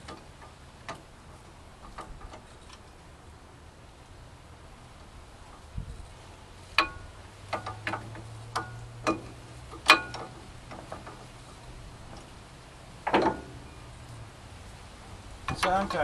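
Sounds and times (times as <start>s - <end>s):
brake parts rattling: 5.9s - 13.8s, 15.4s - 16.0s.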